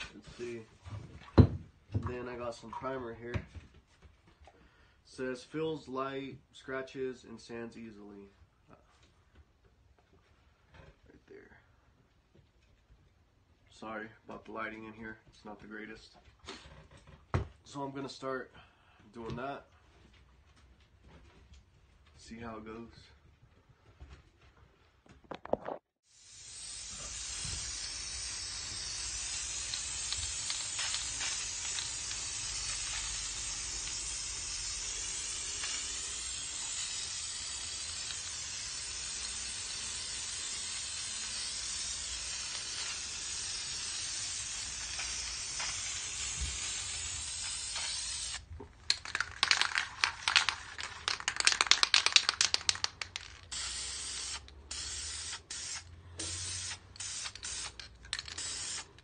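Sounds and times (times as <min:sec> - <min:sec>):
aerosol spray can hissing: 0:26.1 - 0:59.0
spray can being shaken rattling: 0:26.3 - 0:59.0.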